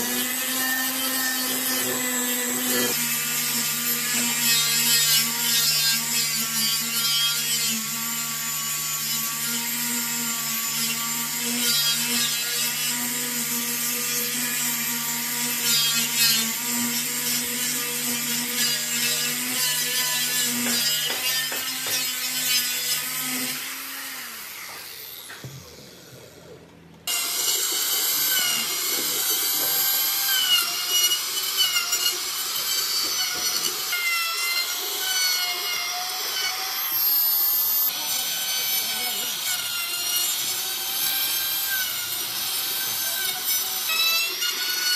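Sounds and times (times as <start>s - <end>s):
angle grinder sanding wood: 0.0s - 26.0s, 27.1s - 44.9s
trim router cutting wood: 0.0s - 26.5s, 27.1s - 44.9s.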